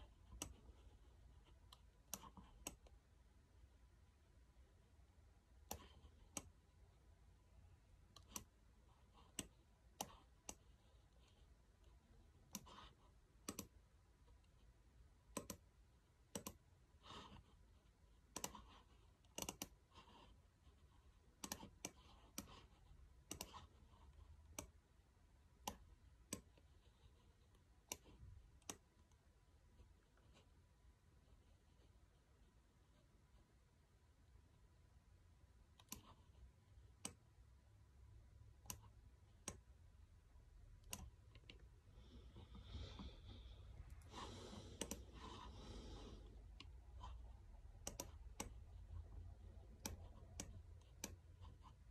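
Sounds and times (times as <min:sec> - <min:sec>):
computer mouse clicks: 0:00.0 - 0:03.0, 0:05.6 - 0:06.6, 0:08.1 - 0:13.8, 0:15.2 - 0:16.7, 0:18.2 - 0:20.3, 0:21.3 - 0:24.8, 0:25.6 - 0:26.7, 0:27.4 - 0:29.2, 0:35.7 - 0:37.3, 0:38.5 - 0:39.8, 0:40.8 - 0:41.6, 0:43.9 - 0:47.2, 0:47.8 - 0:51.9.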